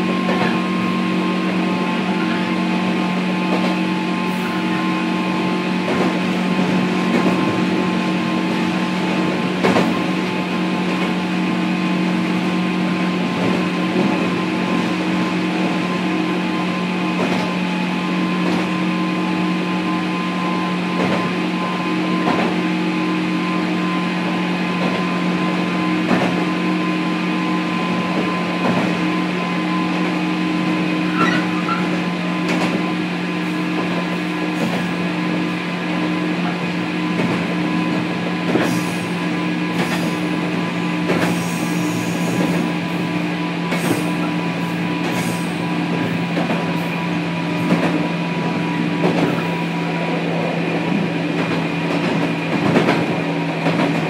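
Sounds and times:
train equipment hum: 0:00.0 - 0:54.0
train wheels clacking: 0:36.4 - 0:54.0.

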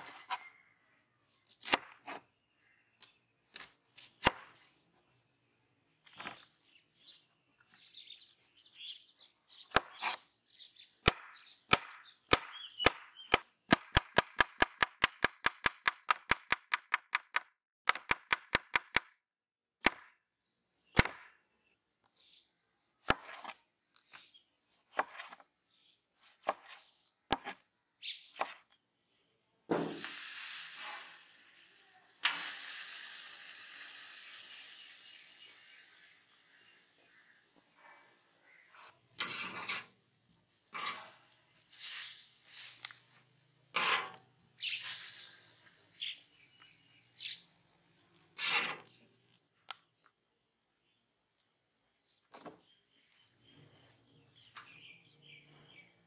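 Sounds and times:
griddle sizzling: 0:29.7 - 0:37.2, 0:40.8 - 0:44.1, 0:44.7 - 0:48.8.

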